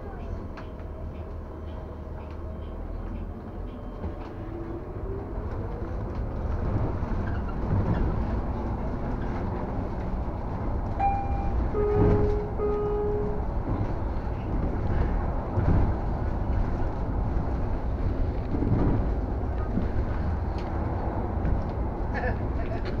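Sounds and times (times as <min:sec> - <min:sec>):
bus engine and road rumble: 0:00.0 - 0:23.0
short electronic beeps: 0:11.0 - 0:13.3.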